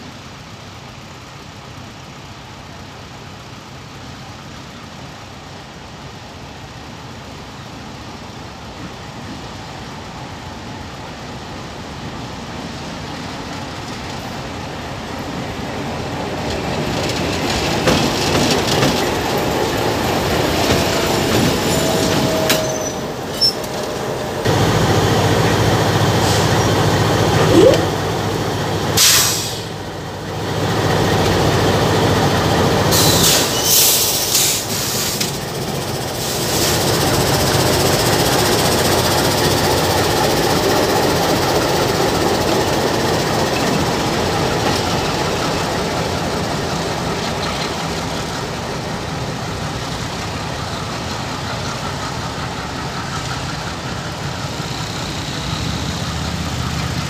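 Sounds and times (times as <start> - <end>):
diesel locomotive engines droning: 0.0 - 57.0
wheel and rail noise: 0.0 - 57.0
air hissing bursts: 29.0 - 29.8.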